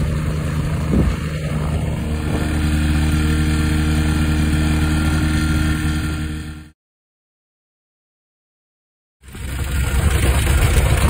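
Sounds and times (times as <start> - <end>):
ultralight engine and propeller running: 0.0 - 6.8, 9.2 - 11.0.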